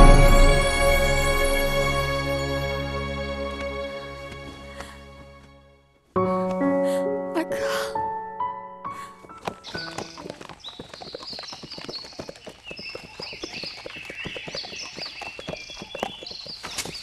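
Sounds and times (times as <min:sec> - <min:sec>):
horse hooves clip-clopping: 0:03.5 - 0:05.5, 0:09.2 - 0:17.0.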